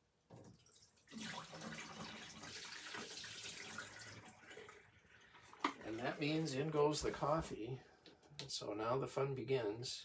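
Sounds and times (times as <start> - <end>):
water pouring into sink: 0.4 - 6.3.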